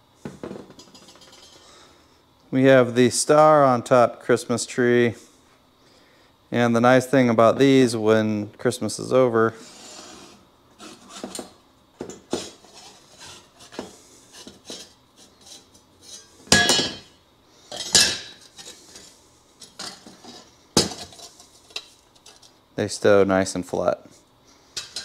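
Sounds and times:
steel plates clinking and scraping: 12.6 - 17.1.

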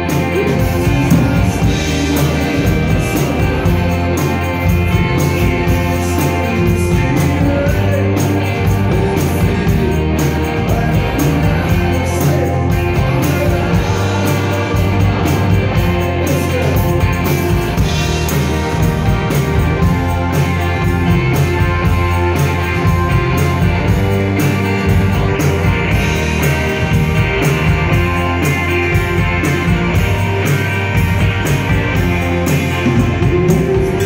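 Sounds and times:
man singing: 0.0 - 18.3, 32.0 - 34.0
drum kit beat: 0.0 - 34.0
electric guitars: 0.0 - 34.0.

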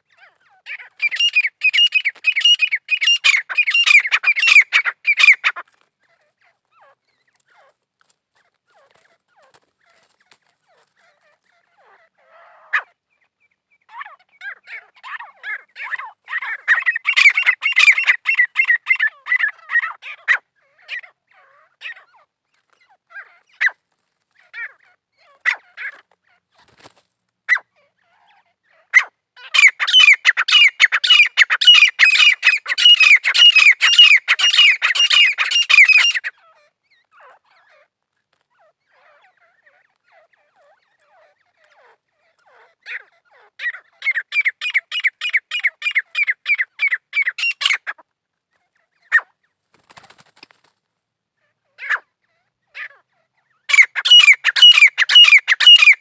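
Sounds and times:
birds calling shrill repeated notes: 0.6 - 5.6, 14.3 - 20.0, 29.4 - 36.4, 42.9 - 48.0, 53.7 - 56.0.

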